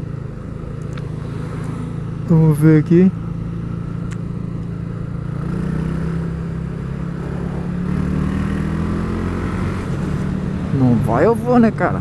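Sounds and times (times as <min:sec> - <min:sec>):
motorcycle engine running: 0:00.0 - 0:12.0.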